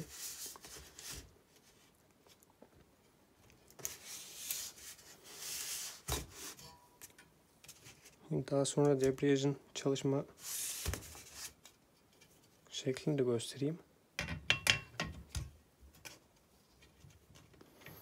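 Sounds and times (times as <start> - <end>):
rubbing and scraping: 0.0 - 2.0, 3.7 - 6.8.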